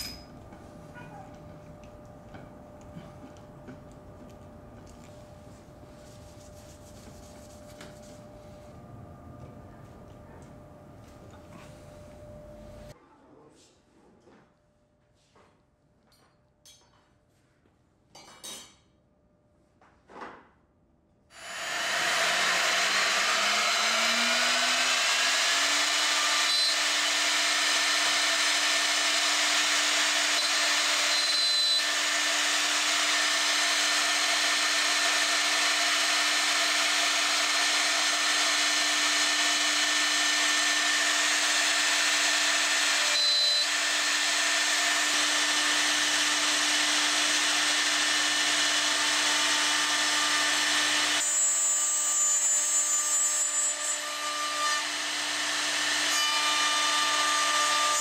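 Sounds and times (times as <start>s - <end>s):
router bit cutting wood: 21.3s - 58.0s
router whining: 21.3s - 58.0s.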